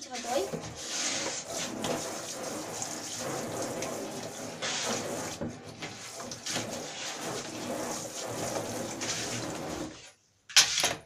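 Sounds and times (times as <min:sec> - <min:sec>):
shower spray splashing on plastic: 0:00.0 - 0:10.1.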